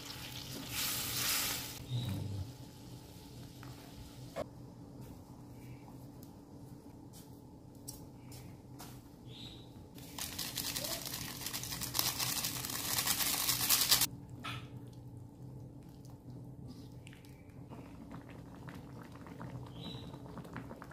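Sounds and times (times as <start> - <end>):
low steady hum: 1.8 - 10.3, 11.3 - 20.9
foil sachet crinkling and tearing: 10.0 - 14.1.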